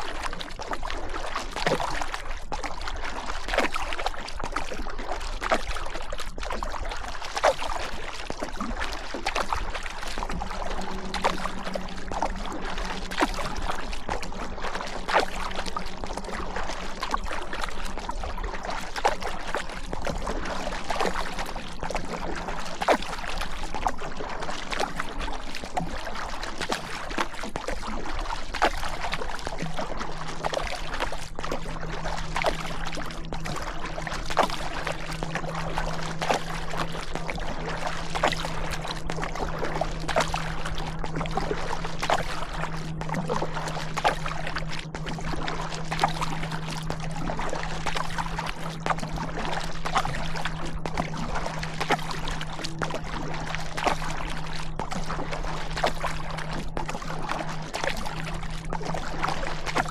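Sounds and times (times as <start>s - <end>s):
paddle strokes in water: 0.0s - 59.9s.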